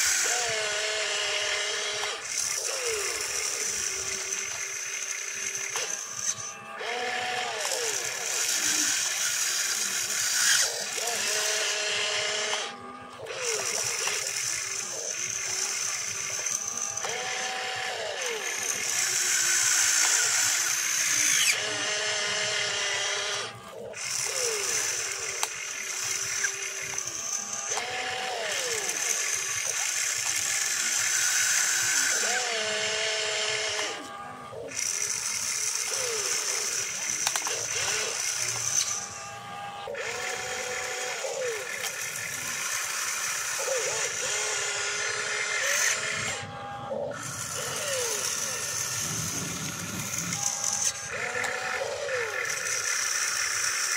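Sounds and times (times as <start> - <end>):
small electric motors whining: 0.0 - 53.9
sharp clicks: 34.7 - 39.0.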